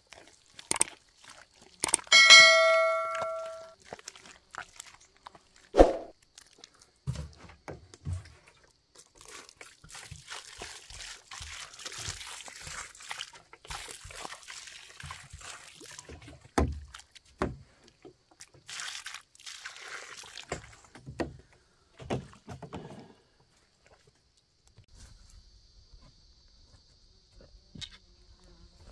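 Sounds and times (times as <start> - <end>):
water pouring onto soil: 0.0 - 2.0, 3.8 - 5.7, 8.9 - 17.2, 18.4 - 20.8
bare feet squelching in mud: 3.8 - 7.0, 8.9 - 17.2, 18.3 - 20.5.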